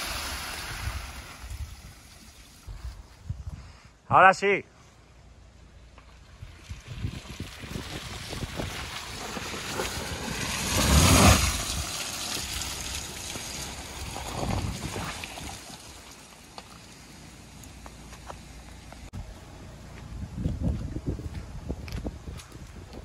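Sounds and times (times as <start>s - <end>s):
tyres splashing through mud: 0.0s - 2.7s, 5.8s - 19.1s.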